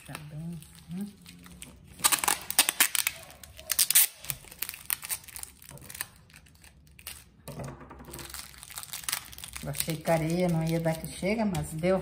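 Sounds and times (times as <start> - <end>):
plastic bag crinkling: 0.0 - 7.5, 8.1 - 11.5
adhesive tape tearing: 1.9 - 7.4, 8.2 - 10.9.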